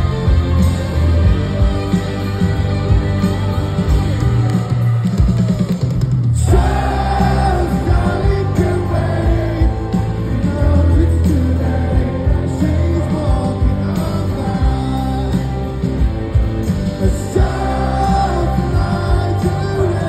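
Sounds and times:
drums: 0:00.0 - 0:20.0
electric guitar: 0:00.0 - 0:20.0
lead vocal singing: 0:06.4 - 0:16.1, 0:16.8 - 0:20.0.

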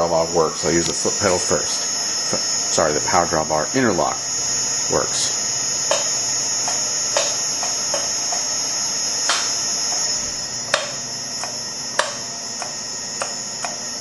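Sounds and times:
spindle motor humming: 0:00.0 - 0:14.0.

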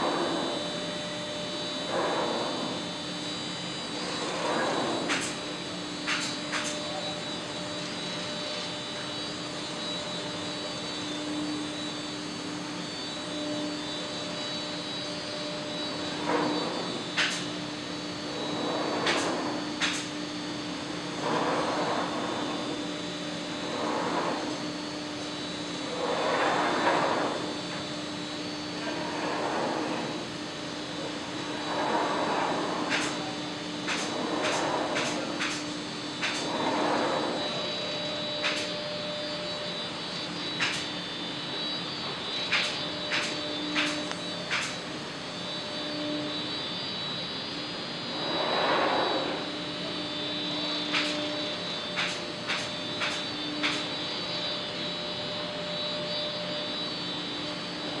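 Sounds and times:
industrial machinery humming: 0:00.0 - 0:58.0.

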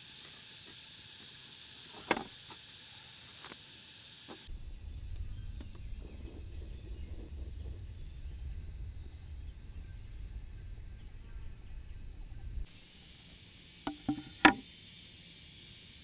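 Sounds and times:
high insect drone: 0:00.0 - 0:16.0
low rumble: 0:04.5 - 0:12.7
wooden board knocking on bamboo: 0:13.9 - 0:14.6.

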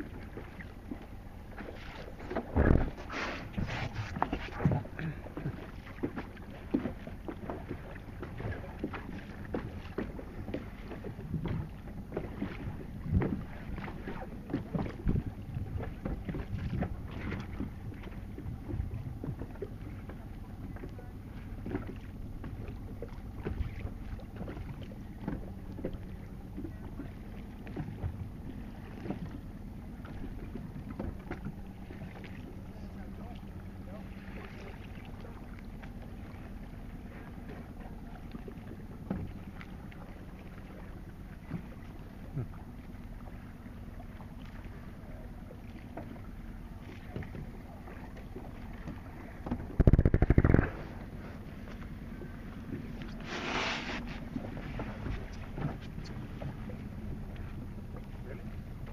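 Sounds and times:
water lapping against boat hull: 0:00.0 - 0:58.9
wind on microphone: 0:49.5 - 0:51.1.

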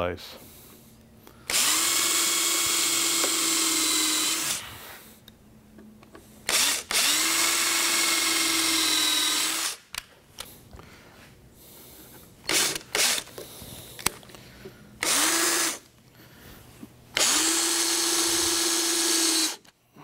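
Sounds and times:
electric drill drilling into wood: 0:01.5 - 0:04.7, 0:06.5 - 0:09.8, 0:12.4 - 0:13.3, 0:15.0 - 0:15.8, 0:17.2 - 0:19.7.

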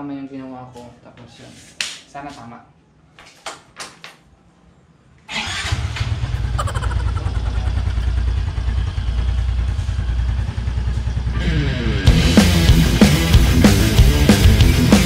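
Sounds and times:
scooter engine starting and running: 0:05.3 - 0:12.4.

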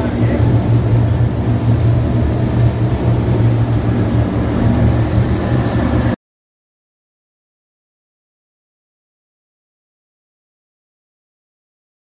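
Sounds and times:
boat engine droning: 0:00.0 - 0:06.2
rush of boat wake: 0:00.0 - 0:06.2.

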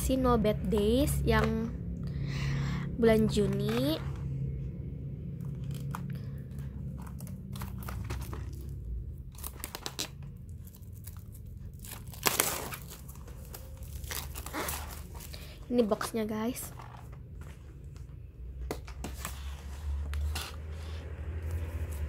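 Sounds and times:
shrink-wrap crinkling and tearing: 0:05.5 - 0:17.1.

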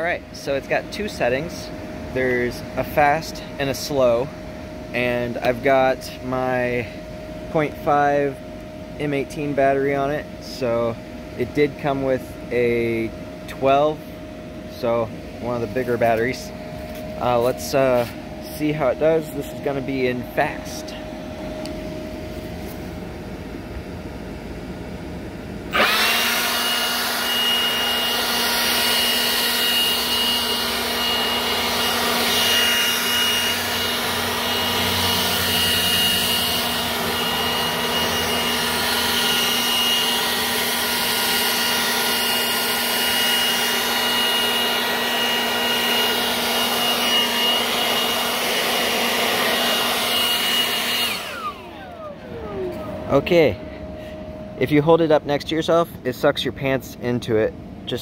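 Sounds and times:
leaf blower running: 0:14.7 - 0:23.6, 0:25.5 - 0:54.2.

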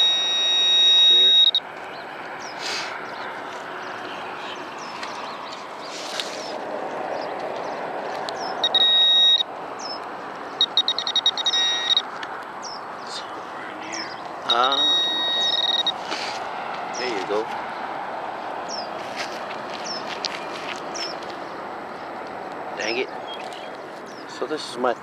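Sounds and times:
pinpointer beeping: 0:00.0 - 0:01.7, 0:08.6 - 0:10.0, 0:10.6 - 0:12.1, 0:13.9 - 0:16.0.

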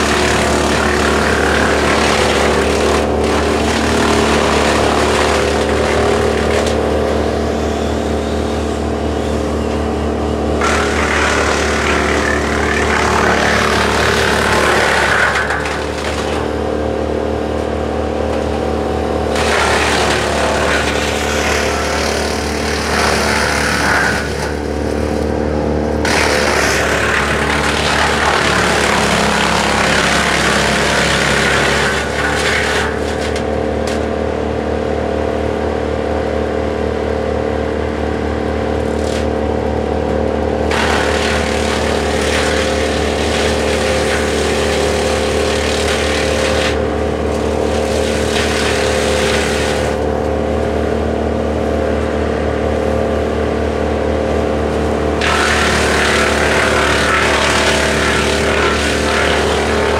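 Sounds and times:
wood chipper running: 0:00.0 - 0:59.9
branches being chipped: 0:55.2 - 0:59.9.

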